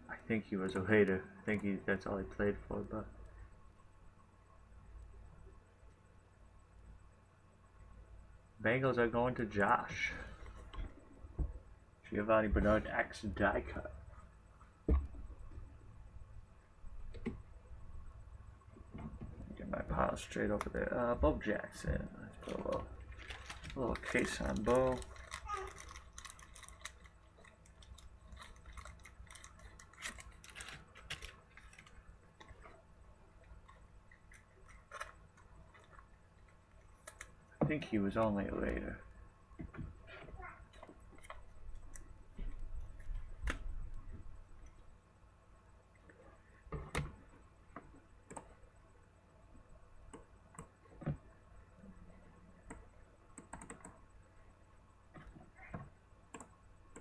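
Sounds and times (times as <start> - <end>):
computer keyboard keystrokes: 53.4 - 54.0.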